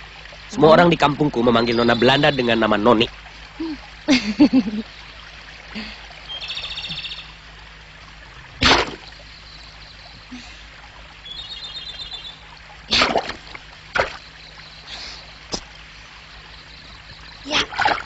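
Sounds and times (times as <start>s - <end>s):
trickling stream water: 0.0s - 18.0s
bird trilling: 1.5s - 2.7s, 6.3s - 7.4s, 11.2s - 12.5s.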